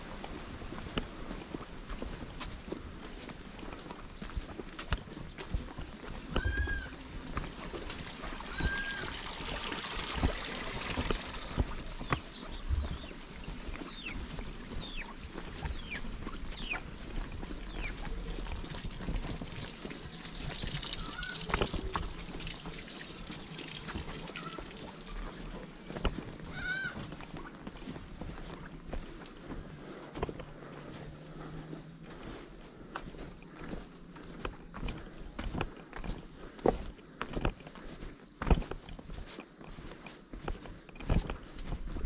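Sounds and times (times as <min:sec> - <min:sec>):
footsteps on stones: 0:00.0 - 0:42.0
water trickling in stone channel: 0:03.6 - 0:29.4
short high bird calls: 0:06.3 - 0:07.0, 0:08.5 - 0:09.2, 0:21.0 - 0:21.5, 0:26.5 - 0:27.1
bird chirps: 0:11.6 - 0:17.0.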